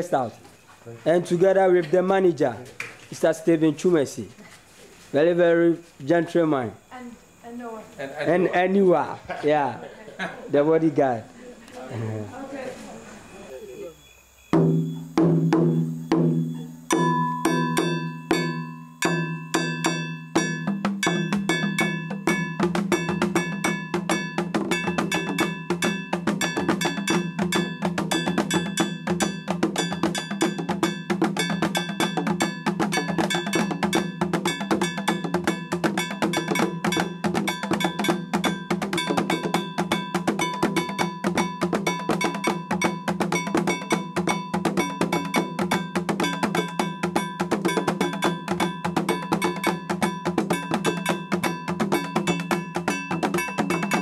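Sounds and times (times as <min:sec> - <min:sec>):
drumming: 0:14.5 - 0:54.0
struck bell: 0:16.4 - 0:54.0.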